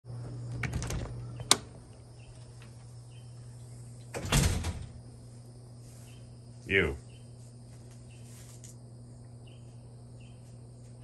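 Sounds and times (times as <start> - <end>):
door rattling: 0.2 - 2.8, 4.1 - 5.0.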